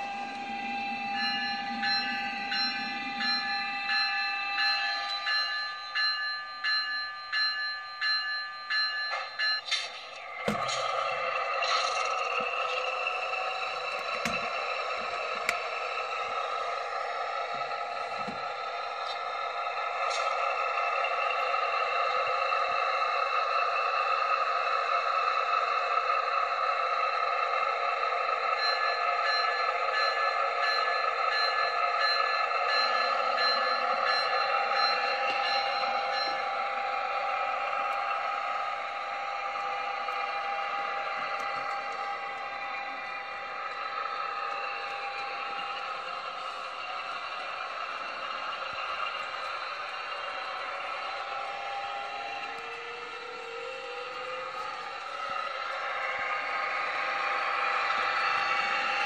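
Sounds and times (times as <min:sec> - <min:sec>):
bell ringing: 0:00.0 - 0:19.1
locomotive bell ringing: 0:00.0 - 0:59.0
model engine drone: 0:37.8 - 0:59.0.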